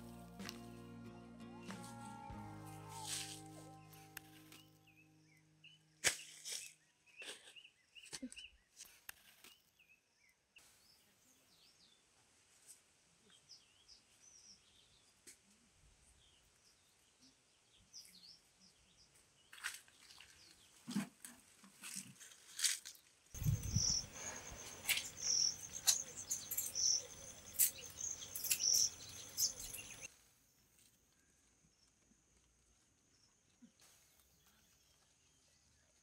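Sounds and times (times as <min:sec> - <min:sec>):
small birds chirping: 0:03.8 - 0:12.0, 0:23.4 - 0:30.1
roots cracking and rustling: 0:21.6 - 0:23.6.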